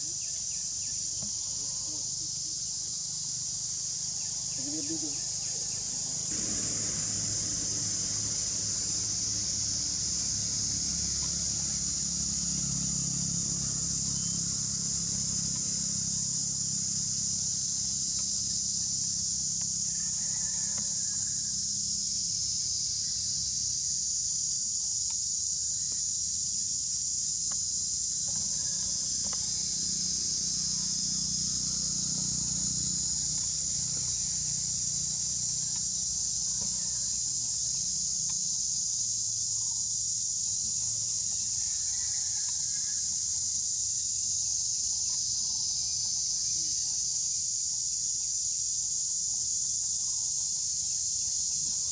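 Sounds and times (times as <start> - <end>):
insect chorus drone: 0.0 - 51.9
low rumble: 6.3 - 12.4.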